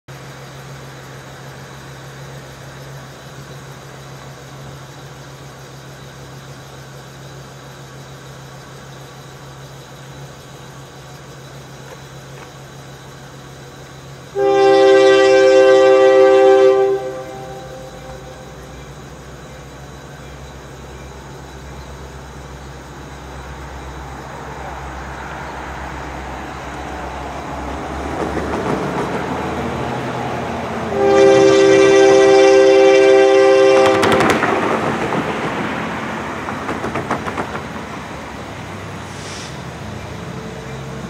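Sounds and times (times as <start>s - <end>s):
locomotive horn blast: 14.3s - 19.0s, 30.6s - 34.8s.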